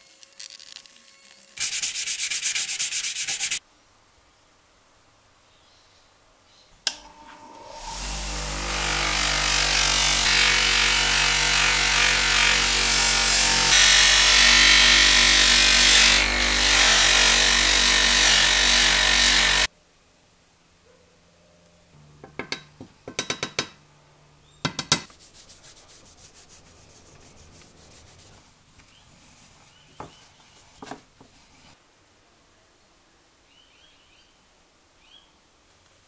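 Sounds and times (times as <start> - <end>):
metal rubbing on polishing wheel: 0.4 - 3.6, 25.0 - 28.5
bench grinder motor hum: 6.9 - 14.8.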